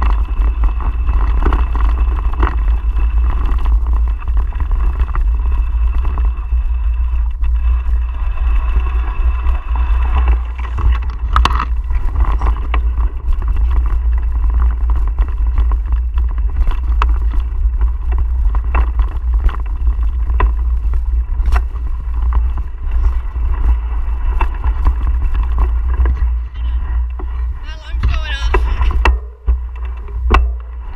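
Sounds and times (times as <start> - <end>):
bike clicks and rattles: 0.0 - 27.6, 28.6 - 30.9
wind and tyre rumble: 0.0 - 30.9.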